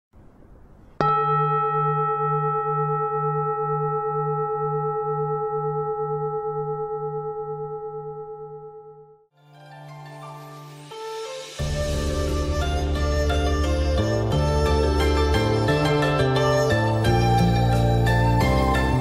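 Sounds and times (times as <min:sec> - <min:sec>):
bell-like metal tone ringing: 0:01.0 - 0:09.2.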